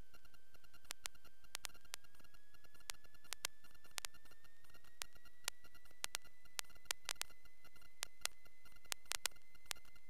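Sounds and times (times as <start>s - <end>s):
faint fast ticking: 0.0s - 10.0s
steady high electrical whine: 0.0s - 10.0s
irregular sharp clicks: 0.9s - 2.0s, 2.8s - 4.2s, 5.0s - 7.3s.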